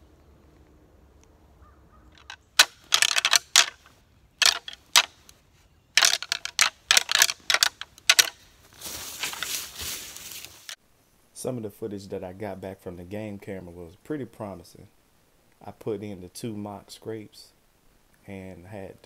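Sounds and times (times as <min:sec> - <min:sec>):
antlers clattering together: 0:02.2 - 0:05.2, 0:06.0 - 0:08.5
antlers rubbing: 0:02.2 - 0:05.3, 0:06.0 - 0:10.8.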